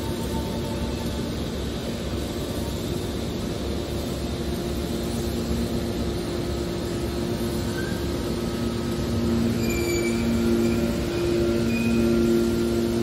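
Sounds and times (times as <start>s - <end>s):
hydraulic baler humming: 7.2s - 13.0s
high squeals: 9.4s - 12.7s.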